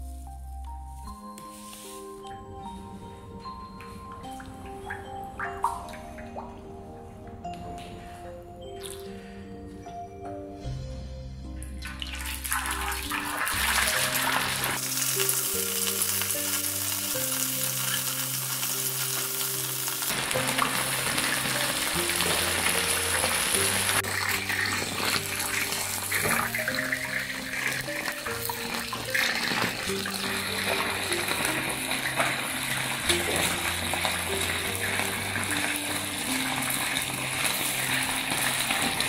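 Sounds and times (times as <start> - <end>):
background music: 0.0 - 39.0
fish deep-frying in hot oil: 11.8 - 39.0.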